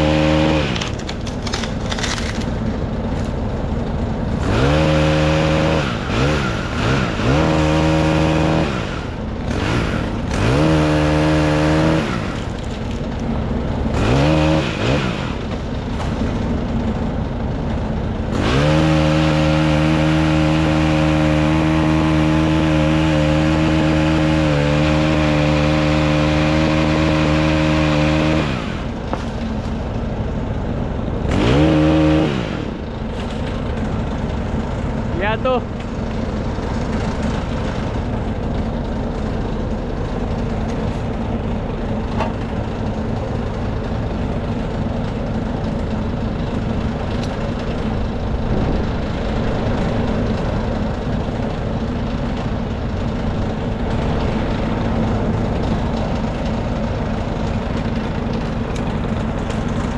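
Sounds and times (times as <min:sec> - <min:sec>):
chainsaw revving and cutting: 0:00.0 - 0:03.5, 0:04.2 - 0:16.2, 0:18.2 - 0:30.0, 0:31.2 - 0:34.3, 0:35.0 - 0:35.6.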